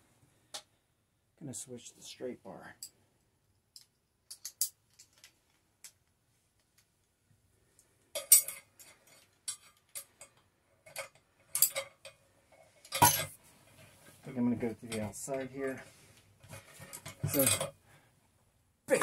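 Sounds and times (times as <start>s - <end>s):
metal clanks: 12.9s - 13.4s, 16.6s - 17.8s.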